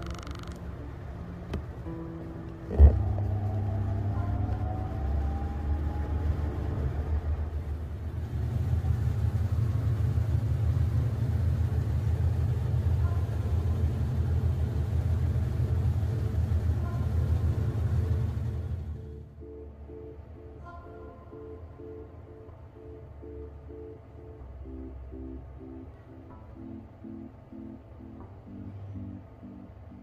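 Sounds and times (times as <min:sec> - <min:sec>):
washing machine spinning: 0:00.0 - 0:20.4.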